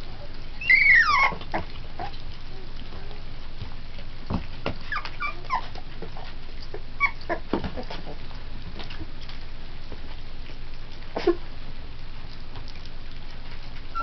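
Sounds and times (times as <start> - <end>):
puppies whimpering: 0.3 - 3.3, 4.7 - 9.4, 13.5 - 14.0.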